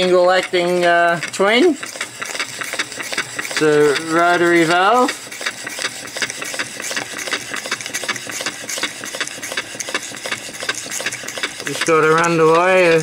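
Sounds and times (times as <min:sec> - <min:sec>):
model steam engine running: 0:00.0 - 0:13.0.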